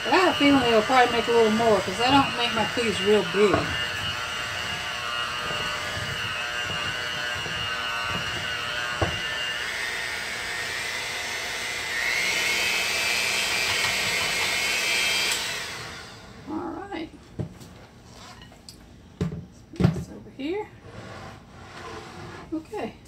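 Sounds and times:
electric hand mixer running: 0.0s - 16.6s.

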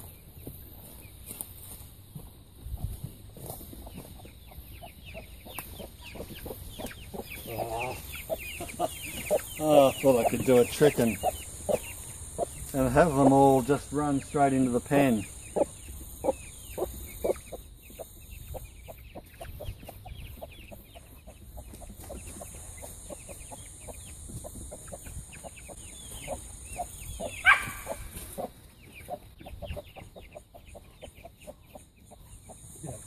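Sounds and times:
chickens clucking: 0.0s - 33.0s
loud chicken call: 27.2s - 28.4s.

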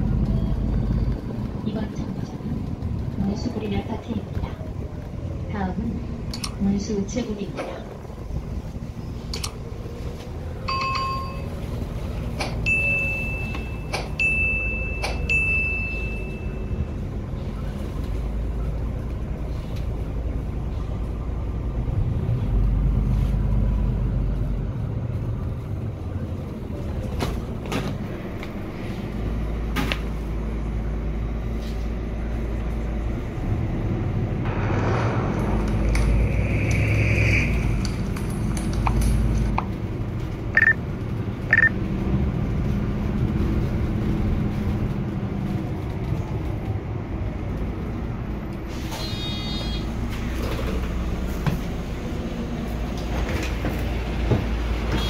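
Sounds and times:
bus engine and road rumble: 0.0s - 55.0s
higher beeps: 40.6s - 40.8s.

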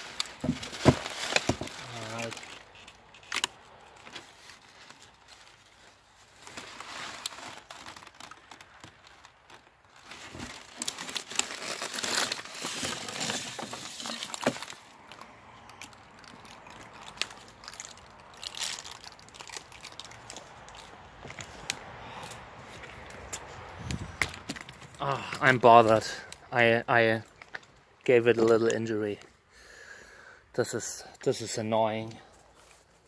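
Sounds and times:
styrofoam and paper rustling: 0.0s - 2.9s, 4.0s - 15.2s.

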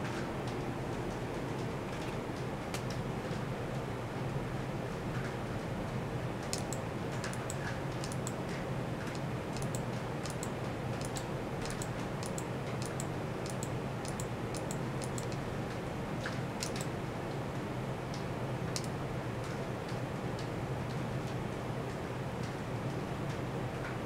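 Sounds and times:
steady low hum: 6.0s - 19.4s
mouse and key clicks: 6.5s - 8.4s, 9.1s - 15.4s, 16.6s - 16.9s.

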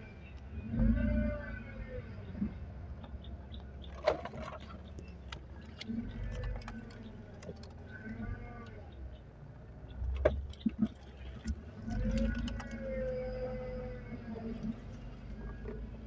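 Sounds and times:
car engine and road rumble: 0.0s - 16.0s
power steering whine: 11.2s - 16.0s.

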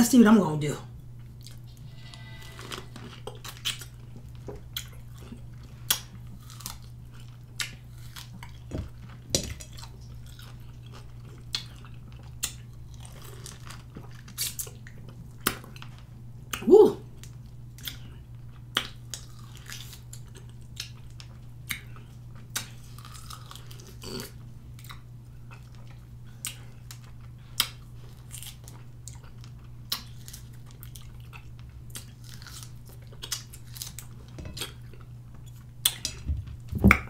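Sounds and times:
low hum: 0.9s - 5.6s
person chewing citrus wedges: 1.1s - 1.8s, 2.4s - 37.0s.

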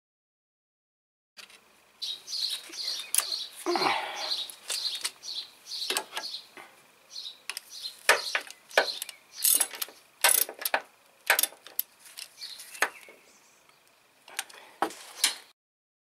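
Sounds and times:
ratchet wrench clicking: 8.4s - 12.3s.

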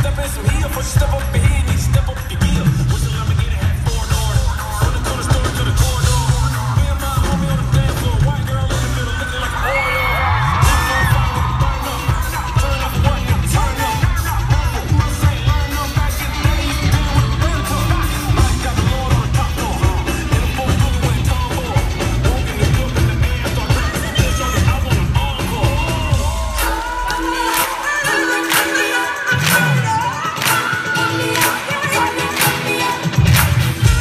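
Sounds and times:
live pop band: 0.0s - 34.0s
steady drum beat: 0.0s - 34.0s
woman singing: 9.2s - 34.0s.

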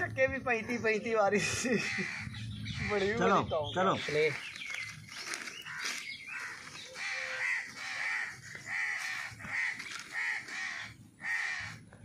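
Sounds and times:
crow cawing: 1.6s - 3.3s, 5.6s - 11.9s.

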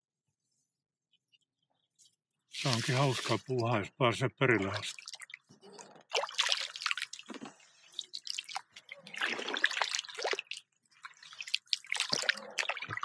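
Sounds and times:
paddle splashes: 2.6s - 3.4s, 4.6s - 13.0s
water dripping off paddle: 4.6s - 5.5s, 6.1s - 13.0s.

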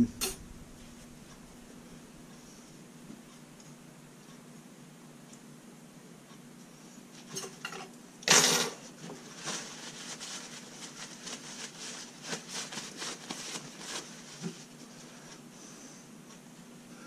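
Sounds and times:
paper towel crinkling: 8.8s - 15.6s.

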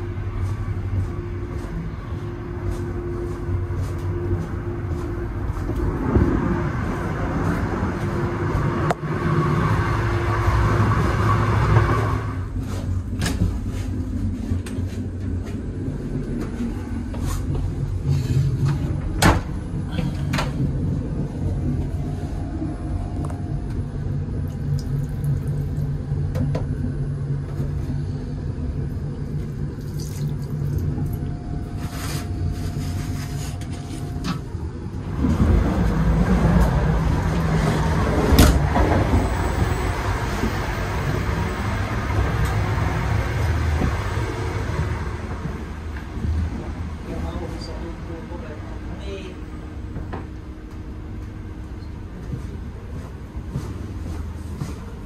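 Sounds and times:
train rumbling: 0.0s - 55.0s.

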